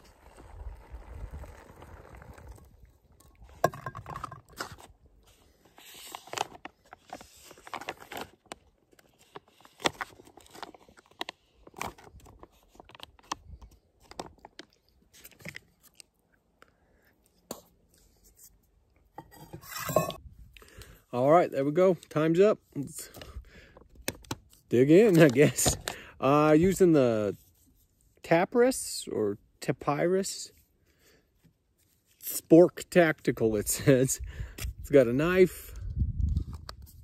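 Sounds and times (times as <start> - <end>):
boiling water pouring into pouch: 0.0 - 3.4.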